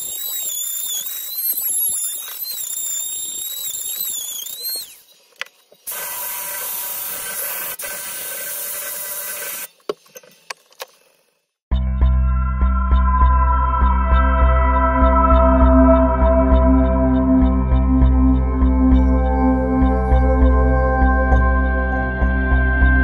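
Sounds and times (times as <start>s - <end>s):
rotary tool burr cutting wood: 0.0s - 11.2s.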